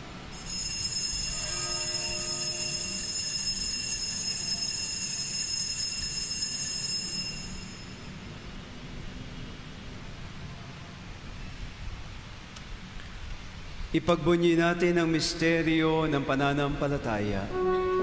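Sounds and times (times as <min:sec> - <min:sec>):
bells jingling: 0:00.3 - 0:08.2.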